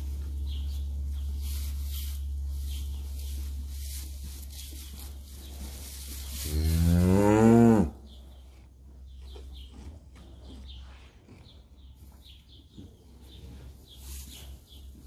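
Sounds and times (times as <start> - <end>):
low hum: 0.0 - 11.8
cow mooing: 6.4 - 8.0.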